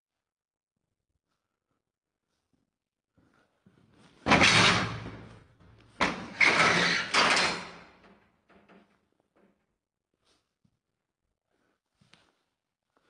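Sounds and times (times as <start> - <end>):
door banging: 4.2 - 5.4, 6.0 - 8.8.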